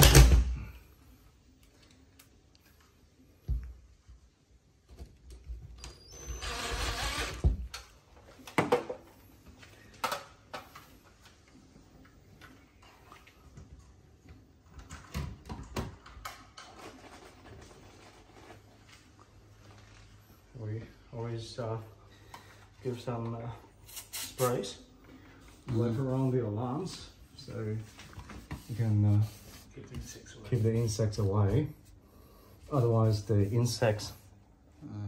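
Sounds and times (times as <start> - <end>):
cordless drill running: 6.4 - 7.4.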